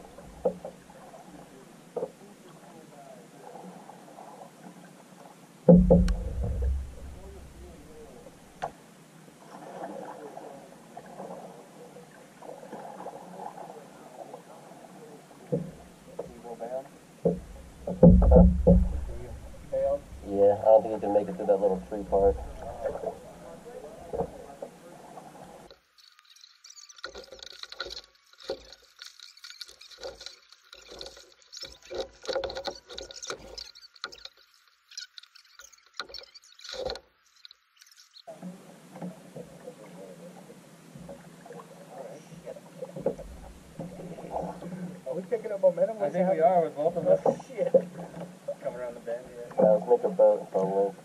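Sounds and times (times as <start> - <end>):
paddle splashes: 0.0 - 51.0
water lapping against hull: 0.0 - 51.0
water dripping: 5.7 - 8.7, 25.7 - 39.1.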